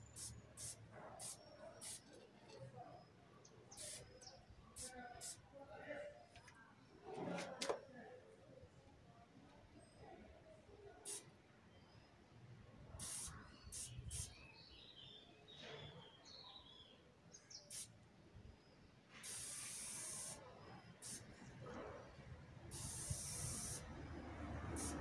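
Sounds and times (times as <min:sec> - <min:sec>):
spray paint can hissing: 0:00.0 - 0:02.2, 0:03.8 - 0:04.1, 0:04.8 - 0:05.4, 0:13.0 - 0:14.3, 0:17.7 - 0:17.9, 0:19.2 - 0:20.4, 0:21.0 - 0:21.3, 0:22.7 - 0:25.0.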